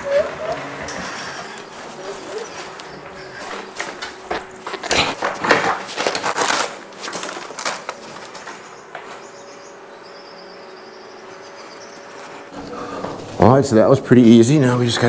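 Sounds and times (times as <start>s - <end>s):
bag rustling and crackling: 1.4s - 8.8s
faint hum: 6.2s - 15.0s.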